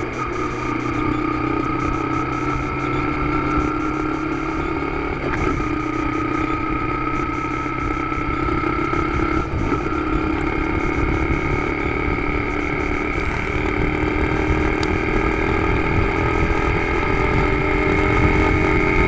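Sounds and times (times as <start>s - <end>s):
motorcycle engine running: 0.0s - 19.0s
wind and road noise: 0.0s - 19.0s.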